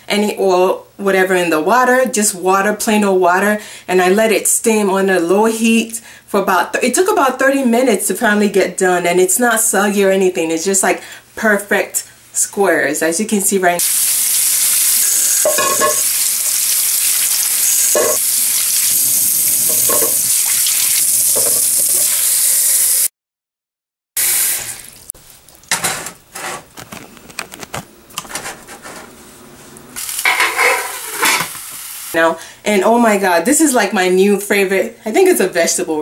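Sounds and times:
metal pot clinking: 15.4 - 16.0, 18.0 - 18.2, 19.7 - 20.2, 30.2 - 31.5
tap running water into pot: 17.9 - 18.2, 19.7 - 22.1.

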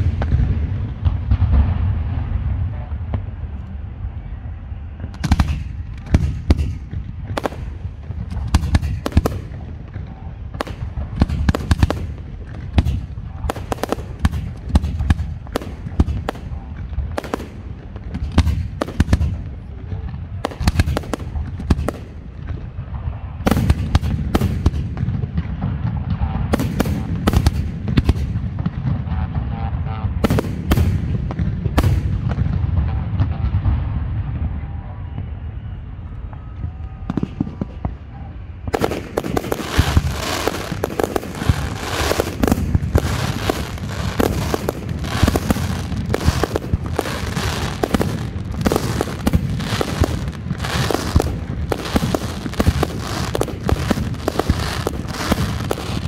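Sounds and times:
low rumble of launches: 0.0 - 56.0
firework shells bursting: 38.8 - 56.0.

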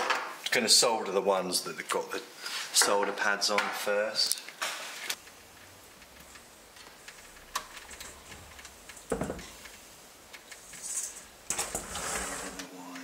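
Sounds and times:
faint clicks and taps: 5.1 - 11.2.

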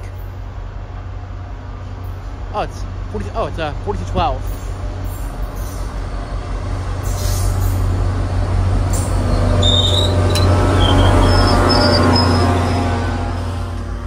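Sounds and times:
locomotive engine rumble: 0.0 - 14.0
train wheels and brakes squealing: 4.4 - 6.0, 7.0 - 8.0, 8.9 - 13.8.

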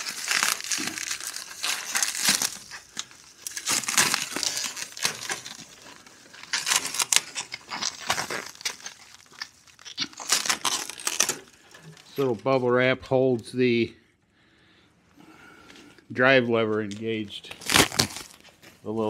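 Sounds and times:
bubble wrap crinkling and tearing: 0.0 - 12.4, 17.4 - 18.8.

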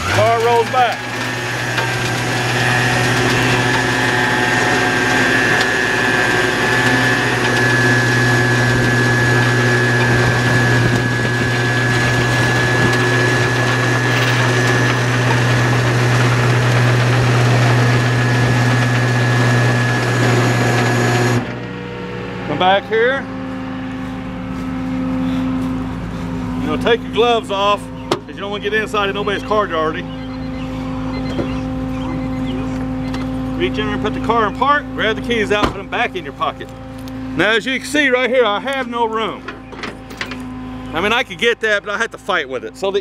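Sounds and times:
hydraulic winch running: 0.0 - 21.8
high whine: 0.0 - 43.0
truck engine drone: 0.0 - 43.0.

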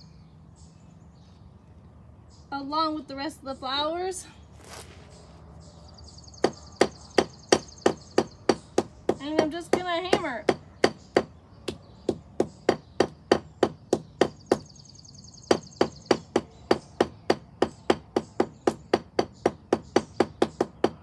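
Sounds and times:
hammer pounding on paper: 6.4 - 11.3, 12.0 - 14.7, 15.5 - 21.0.

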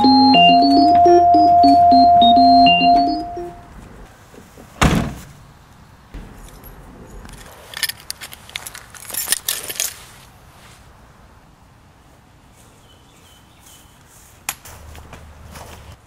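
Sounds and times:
car door slamming: 4.8 - 5.4
keys jingling: 7.7 - 10.0.

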